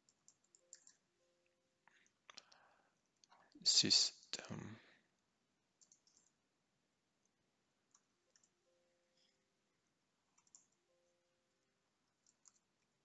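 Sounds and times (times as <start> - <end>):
keyboard keys clicking: 0.0 - 1.0, 5.8 - 6.3, 7.9 - 8.6, 10.3 - 10.9, 12.1 - 12.9.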